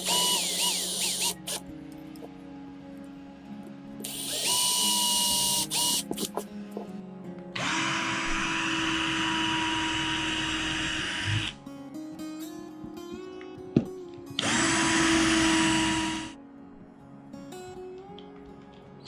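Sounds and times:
power drill boring into metal: 0.0 - 1.6, 4.1 - 6.1, 7.6 - 11.6, 14.4 - 16.3.

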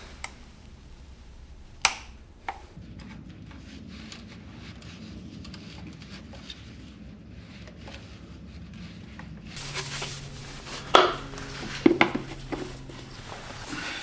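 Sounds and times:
low steady hum: 0.0 - 3.6, 9.5 - 14.0.

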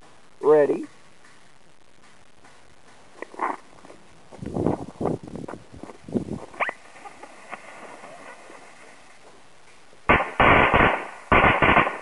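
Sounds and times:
smoke balls hissing: 0.0 - 12.0
firecracker bangs: 10.1 - 12.0.

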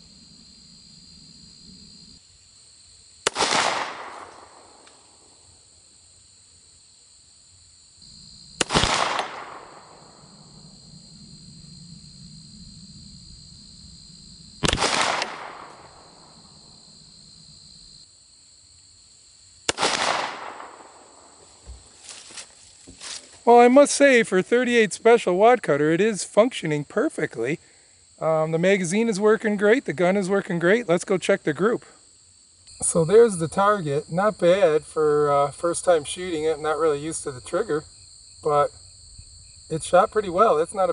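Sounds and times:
pistol shots with echo: 3.3 - 4.8, 8.6 - 10.1, 14.6 - 16.0, 19.7 - 21.3.

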